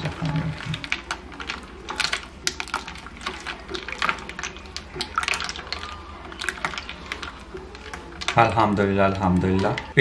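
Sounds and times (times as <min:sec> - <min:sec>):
ice cubes clinking in a bowl: 0:00.0 - 0:10.0
liquid swishing: 0:00.0 - 0:10.0.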